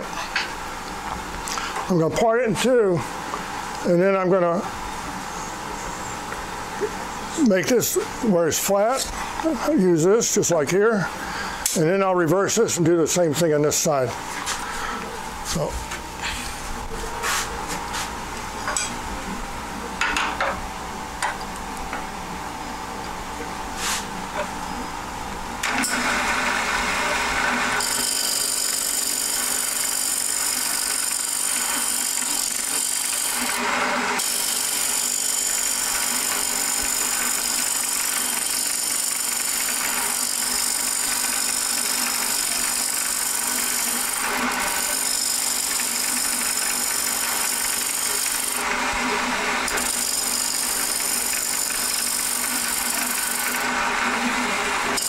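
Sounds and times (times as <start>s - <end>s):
turning tool cutting wood: 25.6s - 55.0s
wood lathe running: 25.6s - 55.0s.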